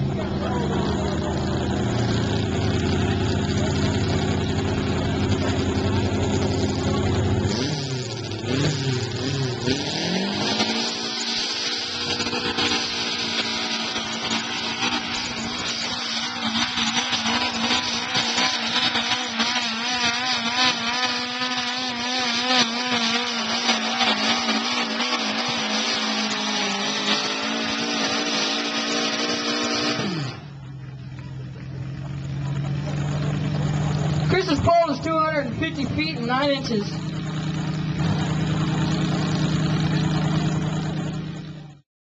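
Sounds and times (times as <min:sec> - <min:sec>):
garden tractor engine running flat out: 0:00.0 - 0:08.4, 0:30.1 - 0:41.8.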